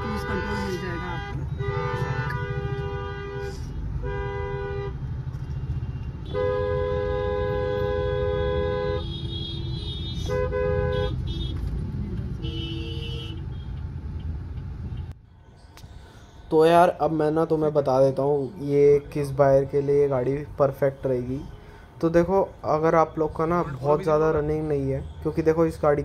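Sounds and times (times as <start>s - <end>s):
car horns honking: 0.0s - 14.0s.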